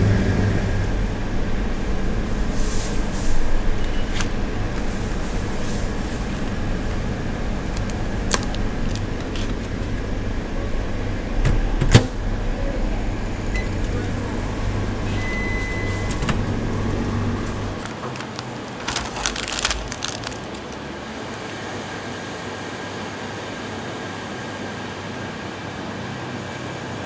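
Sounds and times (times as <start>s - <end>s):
store machine hum: 0.0s - 27.0s
plastic wrap rustling: 7.7s - 10.0s, 17.6s - 21.0s.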